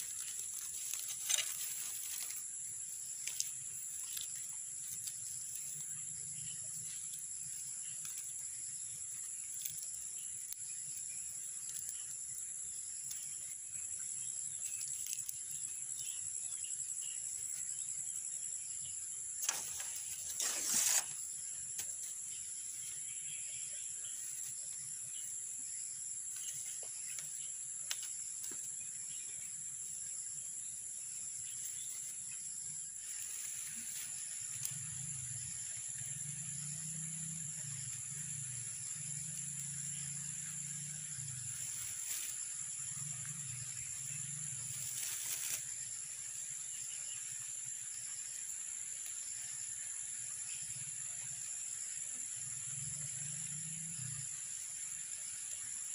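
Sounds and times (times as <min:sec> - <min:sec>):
shrill insect chorus: 0:00.0 - 0:55.9.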